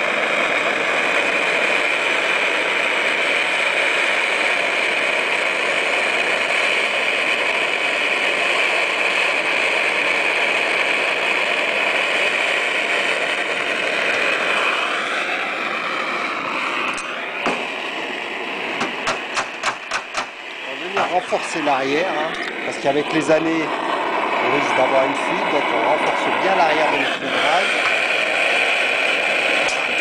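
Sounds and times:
soldering iron burner hissing: 0.0 - 30.0
sharp clicks: 19.0 - 20.3.

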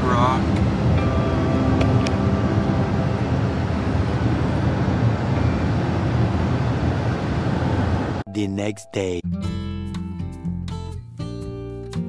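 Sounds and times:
faint hum: 0.0 - 8.2
car cabin road noise: 0.0 - 8.3.

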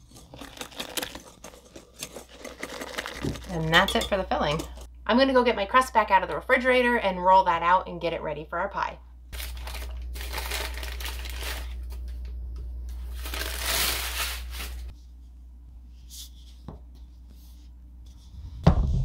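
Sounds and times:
wrapping rustling: 0.0 - 3.6, 9.4 - 12.1, 13.0 - 15.0
steady low hum: 3.4 - 19.0
thump: 18.6 - 19.0.

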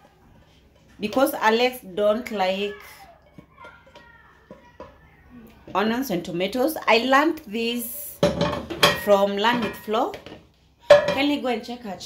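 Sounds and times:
wooden spoon scraping a pan: 0.0 - 2.4.

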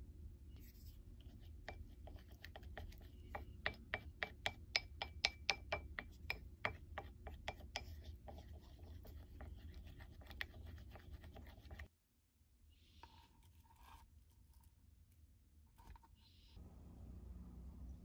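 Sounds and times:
wooden spoon scraping ceramic bowl: 0.7 - 11.9, 13.0 - 14.7.

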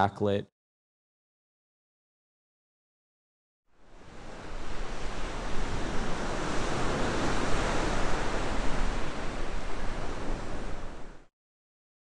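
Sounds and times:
ocean waves breaking: 3.8 - 11.3.

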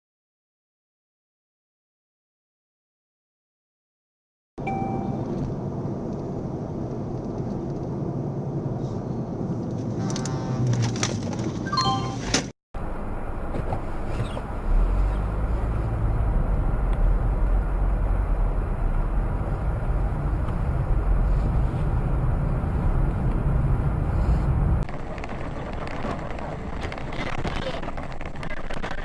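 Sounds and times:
car road and engine noise: 4.6 - 29.0
deep rumble: 12.8 - 29.0.

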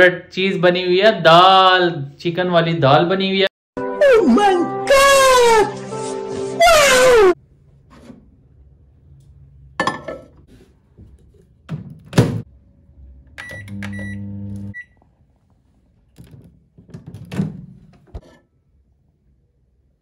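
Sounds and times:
microwave electric hum: 12.1 - 16.1
microwave key beeps: 13.4 - 15.0.

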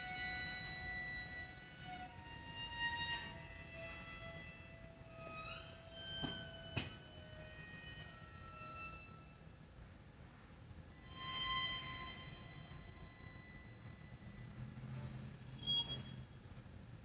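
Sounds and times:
viola and cello playing: 0.0 - 8.9.

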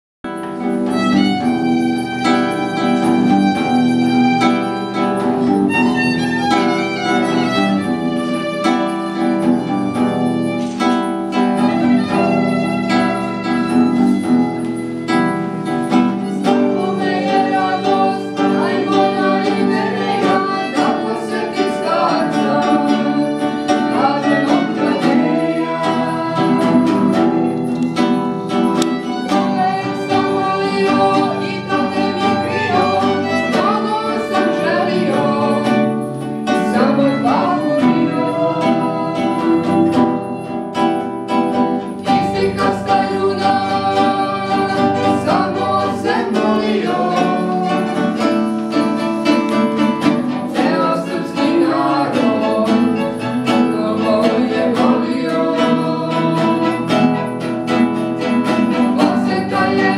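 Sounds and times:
acoustic guitar strumming chords: 0.3 - 59.9
bowed violin melody: 0.6 - 40.6, 42.3 - 59.9
woman singing into a microphone: 29.8 - 35.7, 58.9 - 59.9.

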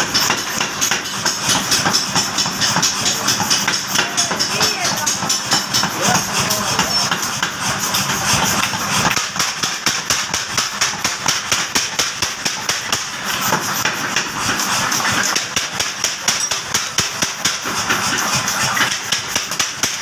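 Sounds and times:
motor and drive running: 0.0 - 11.2
power hammer pounding hot steel: 0.0 - 20.0.

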